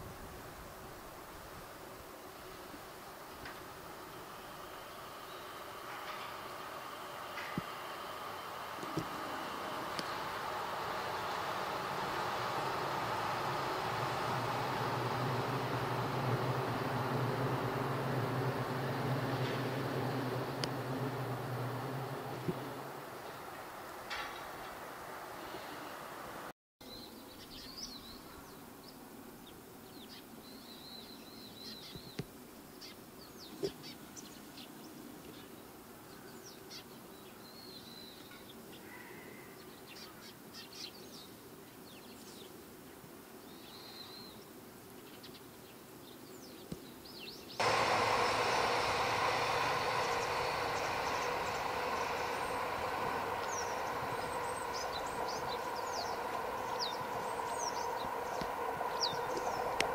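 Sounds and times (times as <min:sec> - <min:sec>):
loud steady rushing noise: 0:03.9 - 0:26.5, 0:47.6 - 0:59.9
sparrows chirping: 0:48.6 - 0:59.8.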